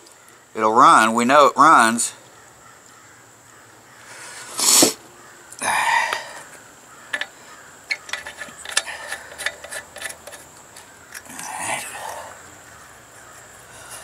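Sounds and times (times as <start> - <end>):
metallic clicks of tools: 7.1 - 11.3.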